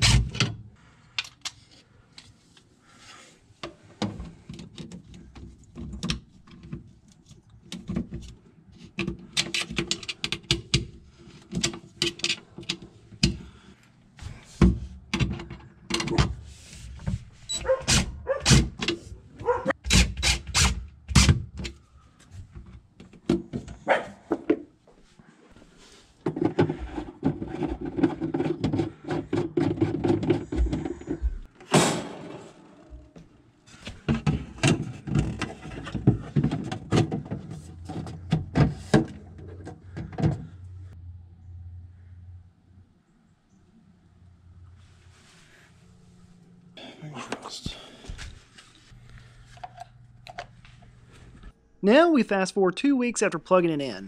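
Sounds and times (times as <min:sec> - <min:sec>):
plastic panels knocking and clicking: 0:33.9 - 0:40.5.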